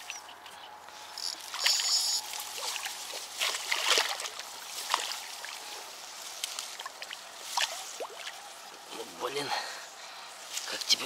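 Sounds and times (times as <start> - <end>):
fish thrashing in shallow water: 1.2 - 8.8.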